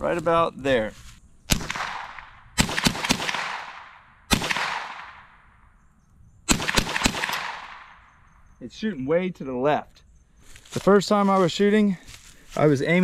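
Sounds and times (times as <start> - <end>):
echoing rifle shots: 1.5 - 5.8, 6.4 - 8.4.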